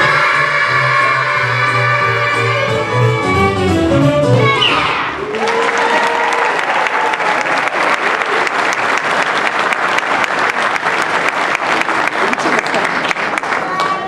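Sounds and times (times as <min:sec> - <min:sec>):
voices cheering: 0:04.5 - 0:08.8
audience clapping: 0:05.2 - 0:14.0.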